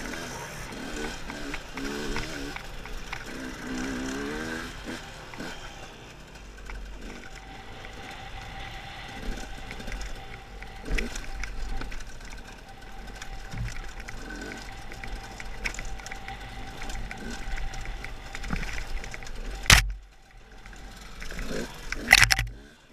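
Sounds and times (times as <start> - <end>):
two-stroke motorcycle engine revving: 0.0 - 22.9
motorcycle knocks and clicks: 18.4 - 20.0, 21.2 - 22.6.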